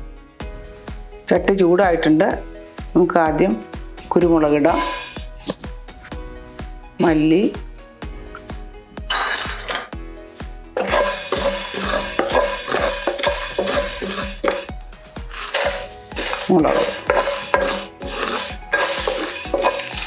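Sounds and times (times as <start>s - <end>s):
seeds rattling: 4.0s - 5.6s, 9.1s - 9.9s, 10.8s - 14.7s, 15.3s - 20.0s
spatula scraping spices in pan: 4.0s - 5.8s, 9.1s - 9.9s, 10.8s - 20.0s.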